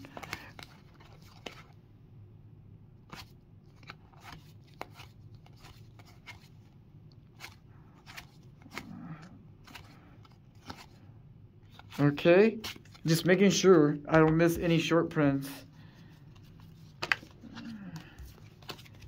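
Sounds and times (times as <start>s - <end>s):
cards rustling: 0.0s - 1.8s, 3.1s - 19.0s
card edges clicking: 16.9s - 19.0s.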